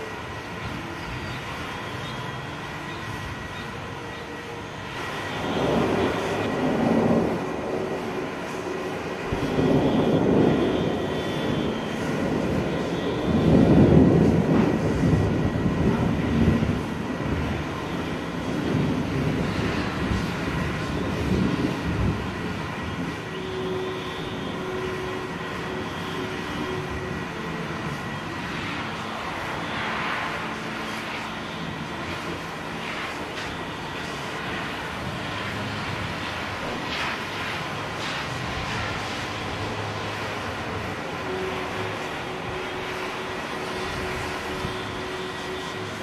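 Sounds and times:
distant thunder rumbling: 5.0s - 28.2s.

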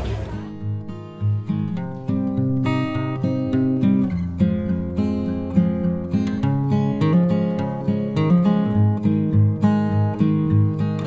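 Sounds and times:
outdoor crowd noise: 0.0s - 0.6s
acoustic guitar plucking: 0.0s - 11.0s.

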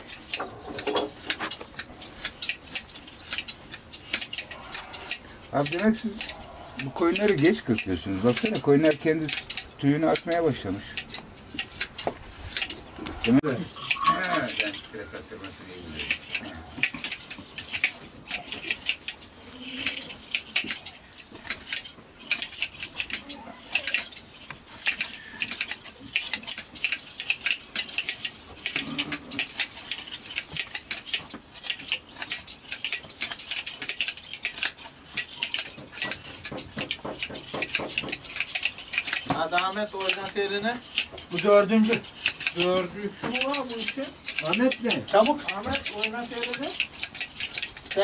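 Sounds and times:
shears snipping wool: 0.0s - 48.0s.

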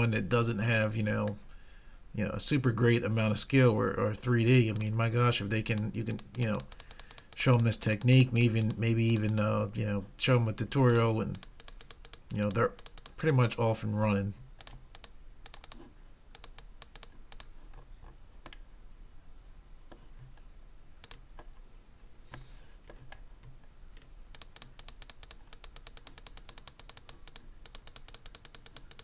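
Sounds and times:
computer control clicks: 5.7s - 9.5s, 10.8s - 13.6s, 14.6s - 17.5s, 24.3s - 29.0s.

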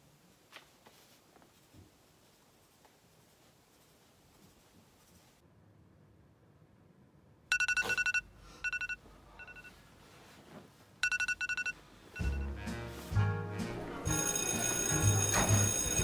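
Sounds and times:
mobile phone ringing: 7.5s - 9.8s, 11.0s - 12.6s, 14.1s - 16.0s.

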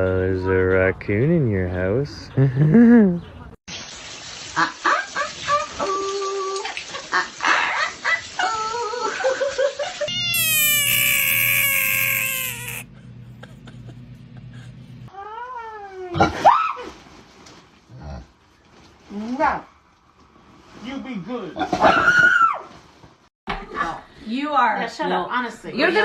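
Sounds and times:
splashing running water: 3.7s - 12.8s
parrots squawking: 10.1s - 12.8s
short rising-and-falling animal call: 10.1s - 12.8s
bullfrog screaming: 10.1s - 12.9s.

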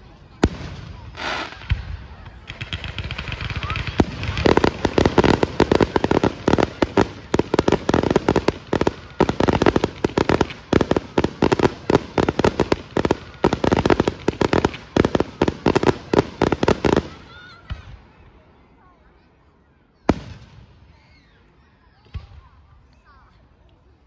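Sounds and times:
fireworks bursting: 0.3s - 18.0s.

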